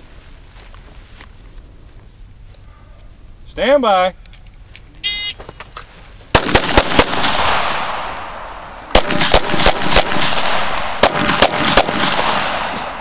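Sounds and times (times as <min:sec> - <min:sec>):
pistol shots with echo: 0:06.3 - 0:13.0.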